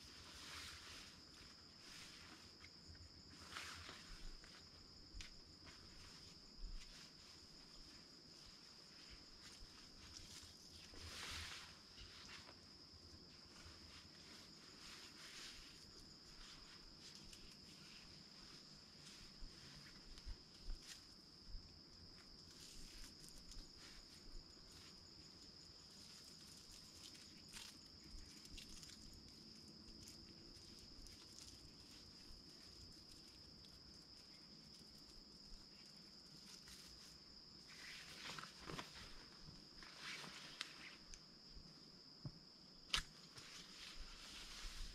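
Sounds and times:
tarp rustling and knocks: 0:37.7 - 0:40.6.

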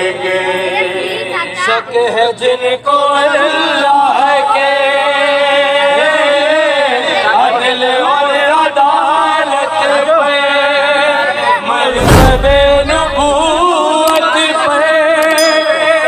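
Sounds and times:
men singing in unison: 0:01.9 - 0:11.9
heavy thump: 0:12.0 - 0:13.6.

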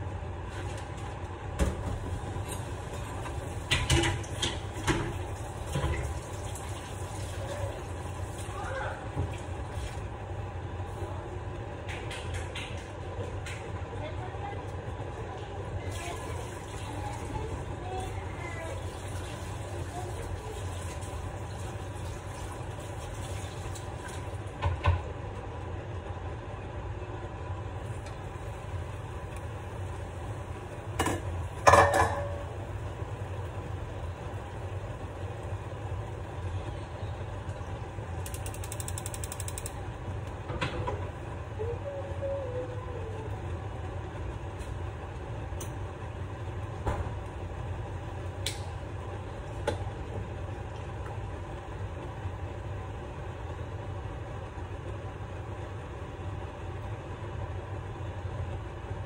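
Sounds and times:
low background hum: 0:00.0 - 0:59.0
metal cookware clattering: 0:31.6 - 0:32.5.

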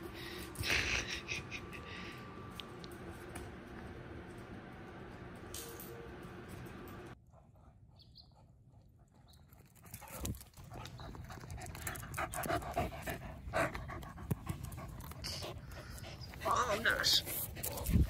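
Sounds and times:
dog panting: 0:09.8 - 0:18.0.

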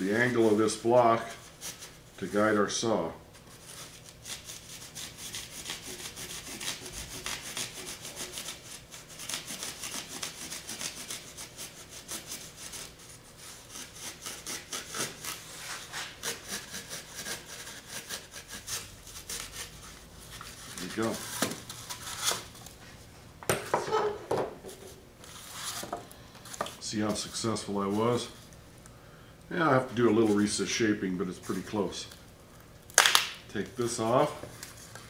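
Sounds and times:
hand saw rasping strokes: 0:04.2 - 0:21.2.

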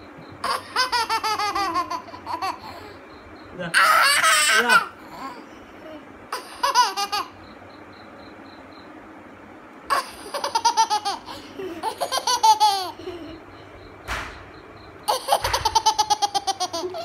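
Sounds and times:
baby laughing: 0:00.4 - 0:03.0, 0:03.6 - 0:07.4, 0:09.9 - 0:13.5, 0:15.1 - 0:17.0.

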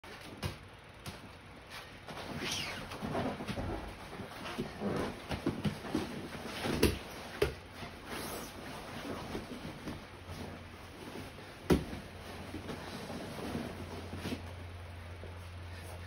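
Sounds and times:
dull thumps on mats: 0:11.6 - 0:12.2.

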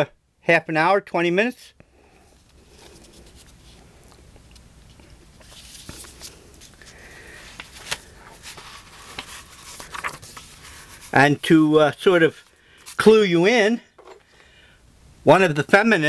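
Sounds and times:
low steady hiss: 0:00.0 - 0:16.0
handling rustling and clicks: 0:07.6 - 0:10.6.

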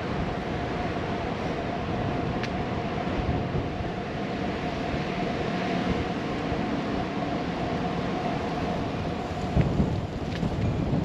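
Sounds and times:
bicycle tyres rolling on street: 0:00.0 - 0:11.0
wind on microphone: 0:00.0 - 0:11.0.

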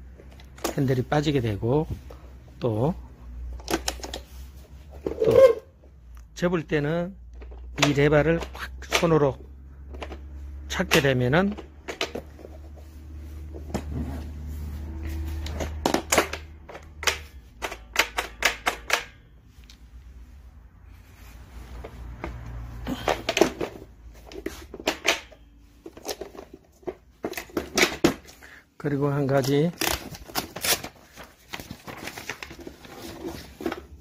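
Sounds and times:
hand truck clicking and clacking: 0:15.5 - 0:19.2.

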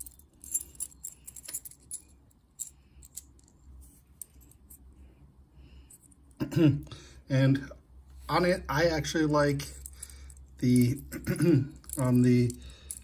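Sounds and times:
metallic clicking and jingling: 0:11.8 - 0:13.0.

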